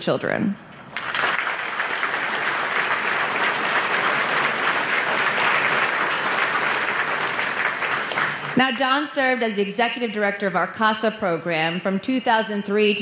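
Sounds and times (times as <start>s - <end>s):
audience applauding: 0.9s - 8.8s.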